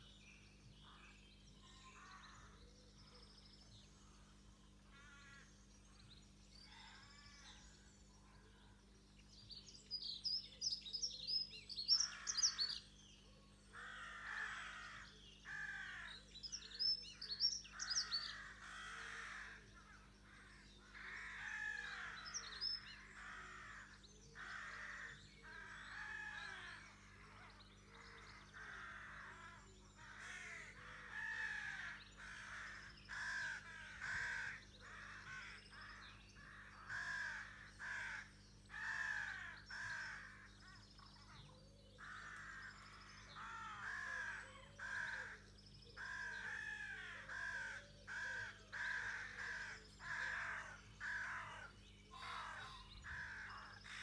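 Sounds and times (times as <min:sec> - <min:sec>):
crows cawing: 0:04.9 - 0:05.5, 0:11.8 - 0:12.8, 0:13.8 - 0:41.3, 0:42.0 - 0:54.0.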